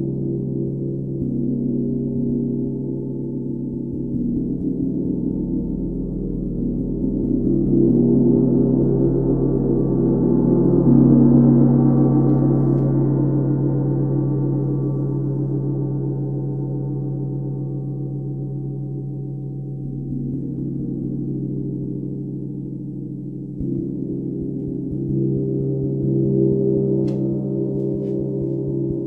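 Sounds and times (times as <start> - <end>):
tam-tam ringing low tones: 19.9 - 29.0.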